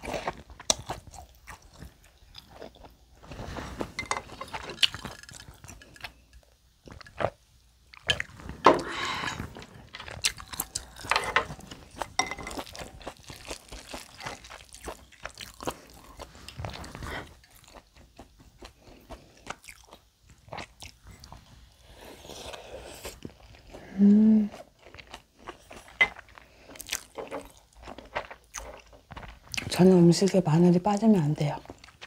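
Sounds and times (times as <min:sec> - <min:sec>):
chewing and mouth sounds: 0:00.0 - 0:03.0, 0:04.3 - 0:08.4, 0:09.3 - 0:21.6, 0:24.5 - 0:30.4.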